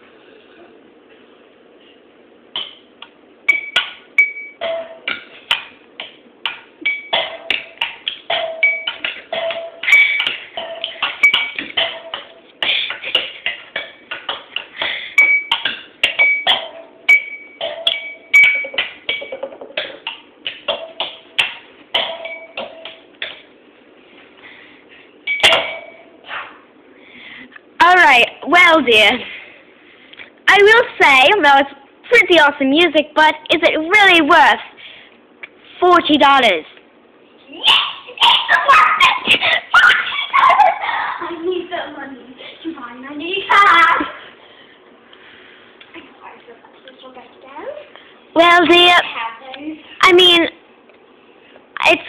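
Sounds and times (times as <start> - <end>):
sticks tapping ringing cups: 6.0 - 12.4, 15.2 - 21.2.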